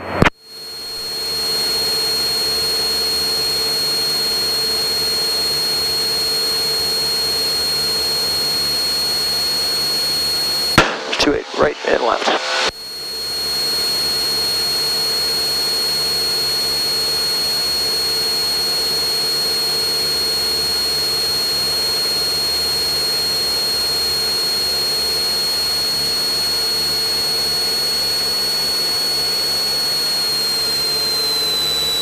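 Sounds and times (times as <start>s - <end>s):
airplane engine and propeller drone: 1.3s - 12.7s
high-pitched whine: 10.8s - 12.8s.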